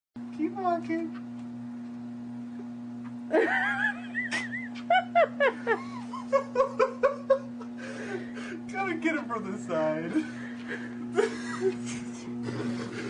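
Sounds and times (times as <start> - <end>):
treadmill motor humming: 0.2 - 13.0
person laughing and giggling: 3.3 - 8.7, 10.1 - 13.0.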